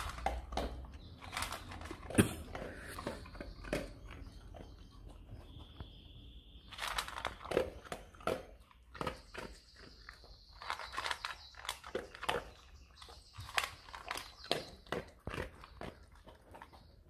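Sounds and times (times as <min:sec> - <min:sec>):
dog crunching dry kibble: 0:00.0 - 0:17.0.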